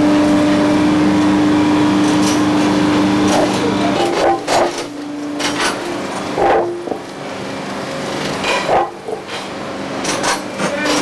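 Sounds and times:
machine humming: 0.0 - 11.0
concrete ties clanking on conveyor: 2.0 - 7.3, 8.0 - 11.0.

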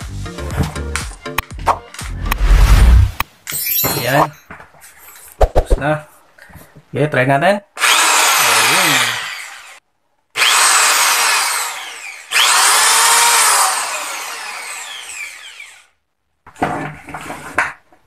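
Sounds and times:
electric drill motor winding down: 7.8 - 9.8, 10.4 - 15.9.

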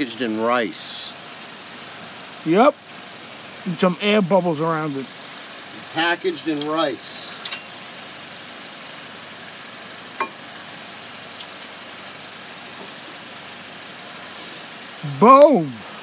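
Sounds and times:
light metal clicks of brake pads: 6.5 - 7.8.

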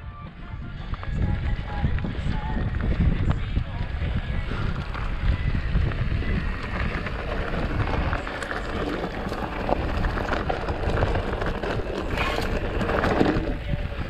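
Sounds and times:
wind buffeting microphone: 0.0 - 14.0
bike tyres crunching on gravel: 0.8 - 14.0
bike clicks and knocks: 0.9 - 14.0.

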